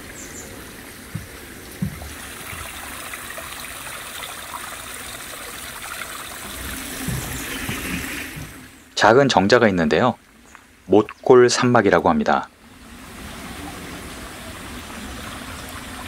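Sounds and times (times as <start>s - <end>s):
stream trickling over stones: 0.0s - 11.9s, 12.6s - 16.0s
soft low thumps: 1.0s - 2.7s, 6.5s - 8.8s.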